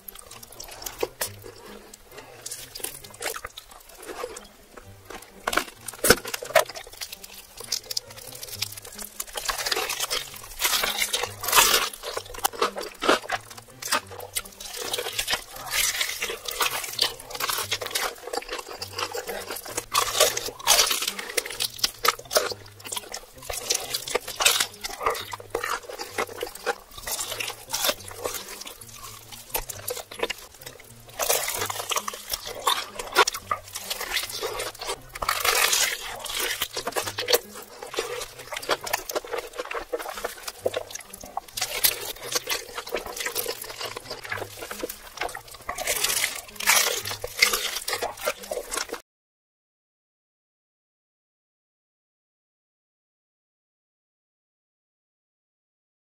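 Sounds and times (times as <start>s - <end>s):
chewing and lip smacking: 0.0s - 49.0s
crunchy bites of fried chicken: 0.0s - 49.0s.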